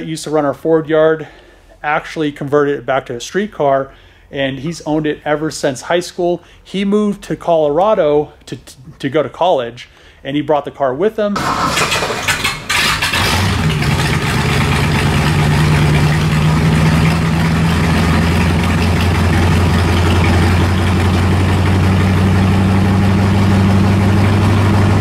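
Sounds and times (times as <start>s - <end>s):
car engine idling: 11.4s - 25.0s.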